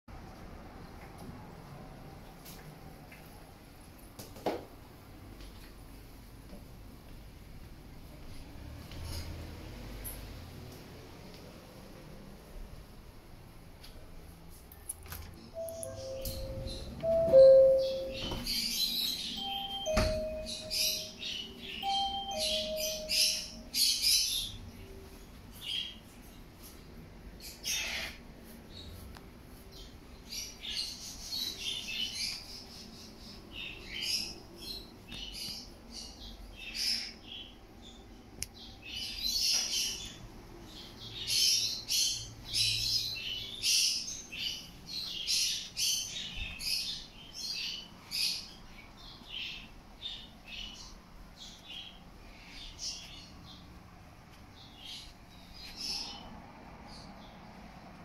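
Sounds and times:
caged birds chirping and squawking: 0:15.4 - 0:57.8
two-note electronic chime: 0:15.6 - 0:18.7, 0:19.4 - 0:23.8.

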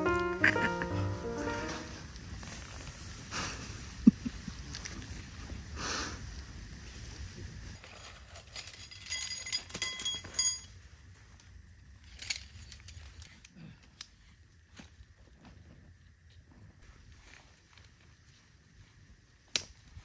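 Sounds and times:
small metal objects clinking: 0:07.9 - 0:10.8.

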